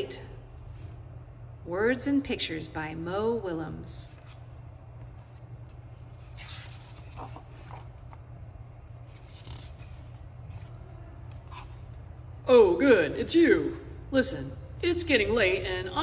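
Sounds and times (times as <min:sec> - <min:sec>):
steady low hum: 0:00.0 - 0:16.0
book pages turning: 0:04.1 - 0:12.1.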